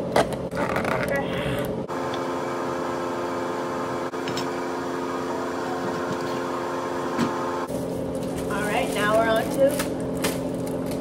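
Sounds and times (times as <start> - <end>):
kitchen appliance humming: 1.3 - 11.0.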